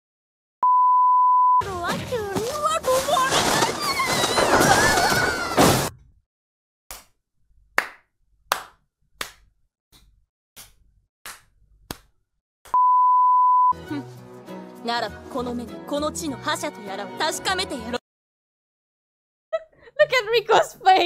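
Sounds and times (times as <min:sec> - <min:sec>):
electronic beep: 0:00.6 - 0:01.6, 0:12.8 - 0:13.8
person clapping: 0:07.8 - 0:09.5, 0:10.6 - 0:12.1
music: 0:13.7 - 0:18.0.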